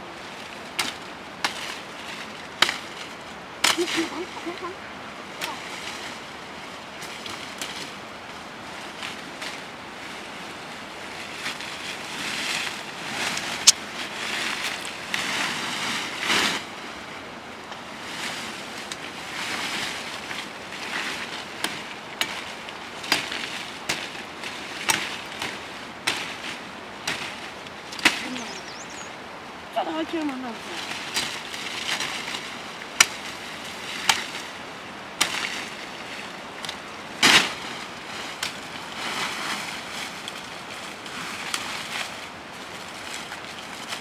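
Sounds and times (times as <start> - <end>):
leafy branches rustling: 0.0 - 44.0
branches cracking: 0.2 - 29.1, 30.1 - 44.0.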